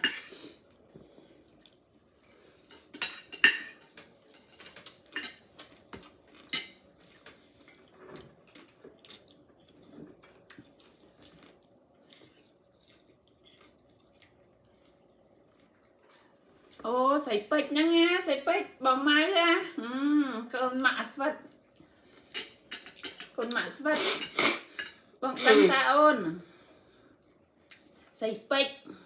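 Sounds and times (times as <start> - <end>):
chopsticks and dishes clinking: 2.5 - 7.4, 22.3 - 25.0.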